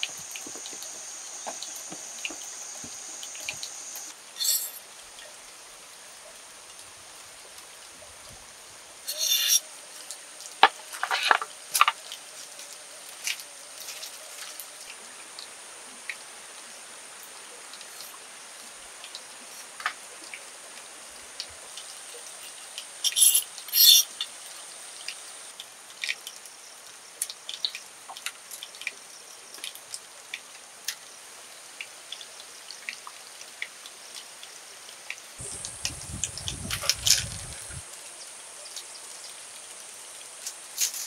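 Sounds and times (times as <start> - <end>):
bamboo strips clicking and rustling: 0.0 - 4.8, 10.5 - 12.3, 35.4 - 37.9, 40.4 - 41.0
steady high hiss: 0.0 - 32.8, 33.5 - 41.0.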